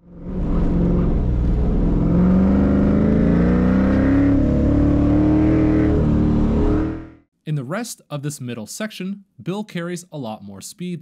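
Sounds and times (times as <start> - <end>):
car engine accelerating hard: 0.0 - 7.2.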